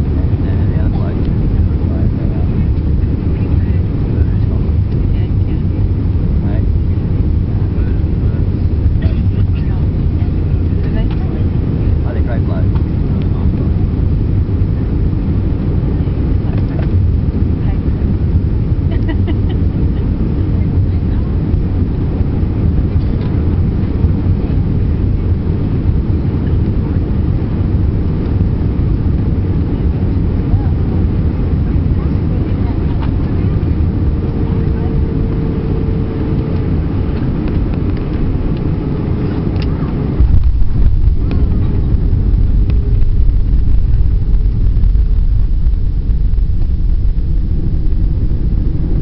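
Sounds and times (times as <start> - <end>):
airliner cabin rumble on landing: 0.0 - 49.0
jet engine roar: 0.0 - 49.0
rushing air: 0.0 - 49.0.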